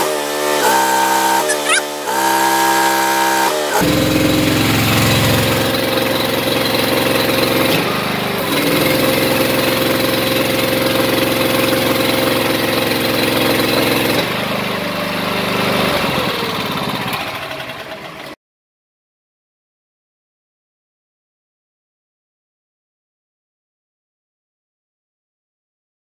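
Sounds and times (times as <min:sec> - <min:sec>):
hydraulic pump running: 0:00.0 - 0:18.4.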